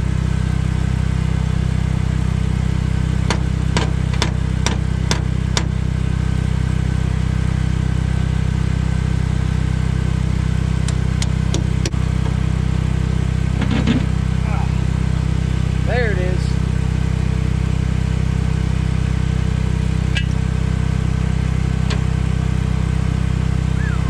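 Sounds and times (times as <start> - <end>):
small engine droning: 0.0 - 24.0.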